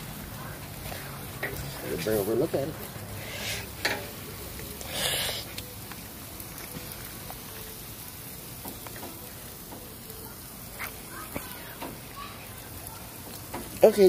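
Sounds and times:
chicken sizzling on a grill: 0:00.0 - 0:14.0.

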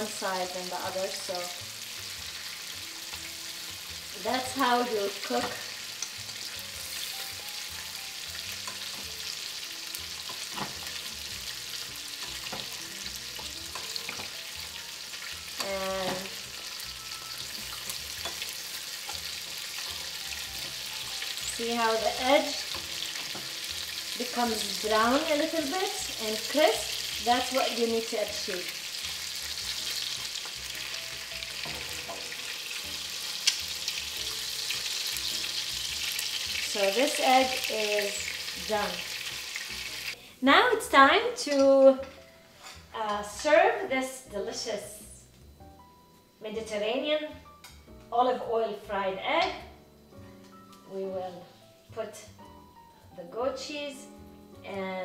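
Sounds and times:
eggs sizzling in a pan: 0:00.0 - 0:55.0
metal spoon in pan: 0:12.2 - 0:25.5
metal spoon clicking on pan: 0:17.7 - 0:18.5.

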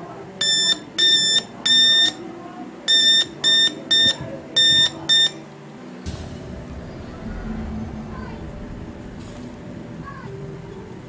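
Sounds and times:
high-pitched electronic beeps: 0:02.9 - 0:05.4
low hum: 0:05.8 - 0:11.0.

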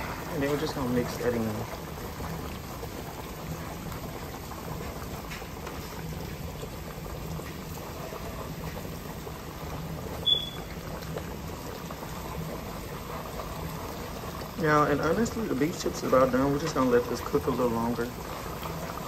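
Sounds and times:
gravy bubbling in a frying pan: 0:00.0 - 0:19.0
high-pitched chirp: 0:10.2 - 0:10.6.

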